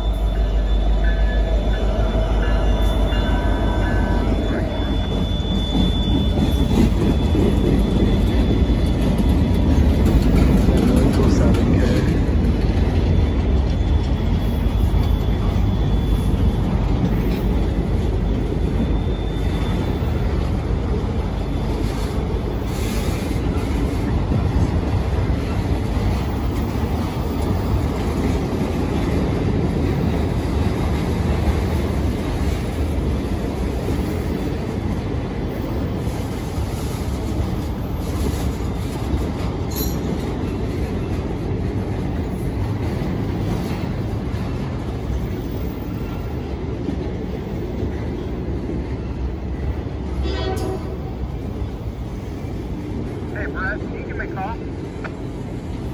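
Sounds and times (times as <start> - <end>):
faint high squeal: 0.0 - 10.2, 13.0 - 20.5
train wheels rumbling on rails: 0.0 - 55.9.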